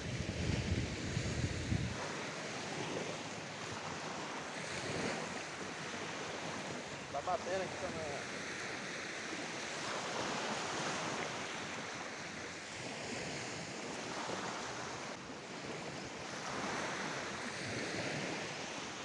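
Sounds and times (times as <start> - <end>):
wind on microphone: 0.0 - 7.0
surf washing onto beach: 0.0 - 19.0.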